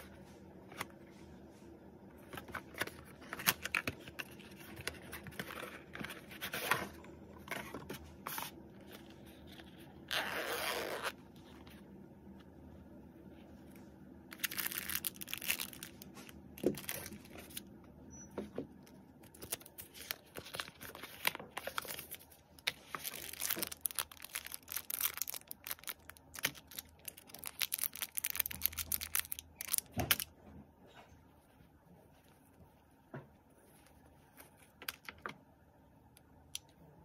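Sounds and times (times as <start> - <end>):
plastic bags crinkling: 14.3 - 17.6, 19.2 - 30.2.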